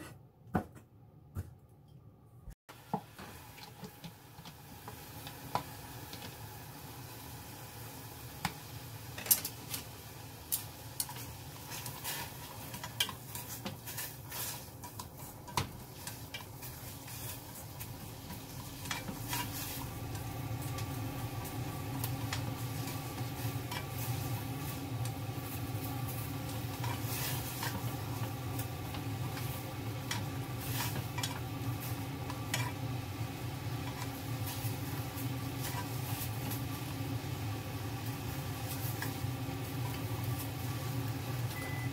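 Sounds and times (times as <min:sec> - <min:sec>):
steady mechanical hum: 0:02.4 - 0:41.9
utensils scraping a pot: 0:11.0 - 0:20.8, 0:26.5 - 0:28.3, 0:29.2 - 0:32.8.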